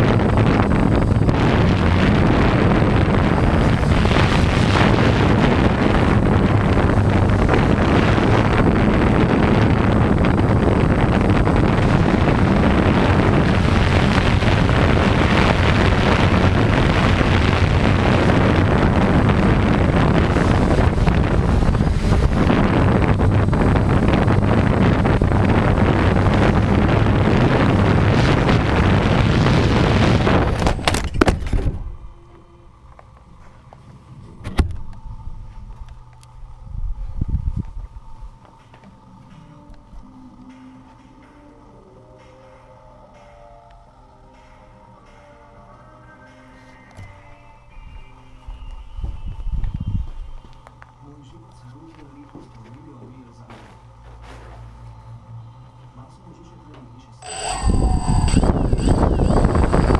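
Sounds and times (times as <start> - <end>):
quadcopter motors and propellers: 0.0 - 31.0
wind buffeting microphone: 0.0 - 32.1, 36.6 - 38.4, 57.3 - 59.9.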